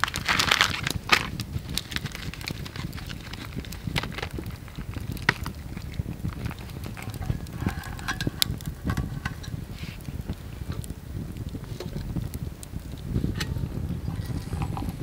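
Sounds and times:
crinkling paper: 0.0s - 10.4s
steady low rumble: 0.0s - 15.0s.

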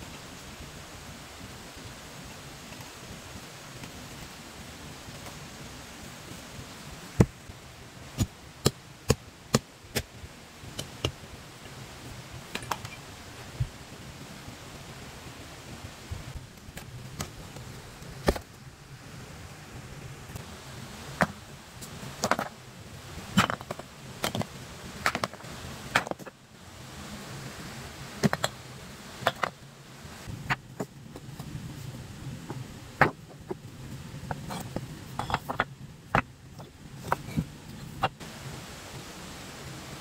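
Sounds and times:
low background noise: 0.0s - 40.0s.

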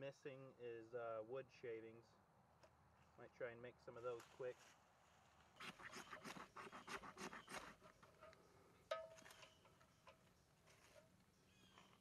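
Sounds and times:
leaves and kindling scraping: 4.0s - 12.0s.

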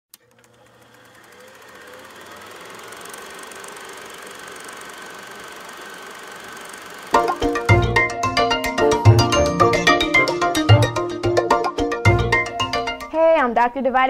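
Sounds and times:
film projector ticking and whirring: 0.1s - 8.2s.

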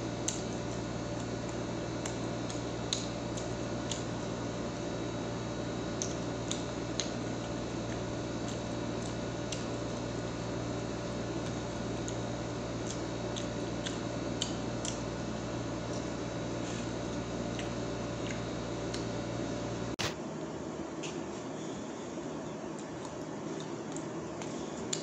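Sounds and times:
steady background hum: 0.0s - 25.0s
eating clicks and wet smacks: 0.2s - 4.2s, 5.9s - 10.1s, 11.4s - 15.1s, 17.5s - 19.1s, 22.6s - 25.0s.

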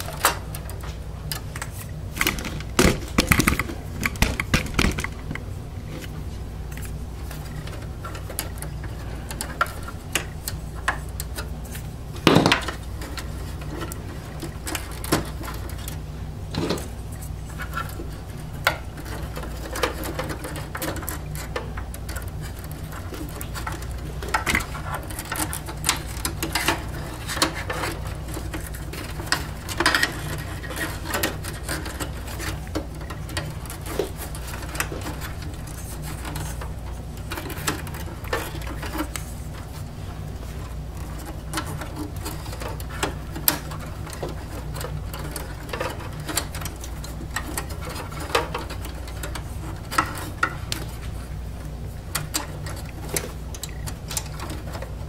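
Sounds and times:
cables and plastic clips rattling: 0.0s - 55.0s
steady low hum: 0.0s - 55.0s.

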